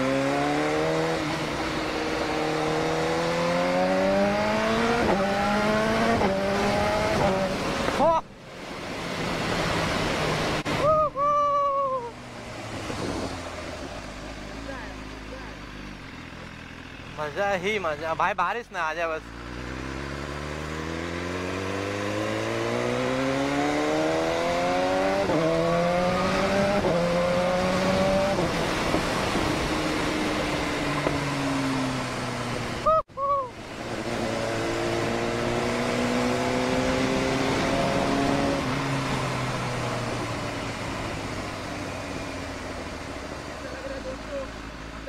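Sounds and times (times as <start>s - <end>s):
motorcycle engine revving: 0.0s - 8.2s, 19.0s - 32.9s, 33.6s - 45.0s.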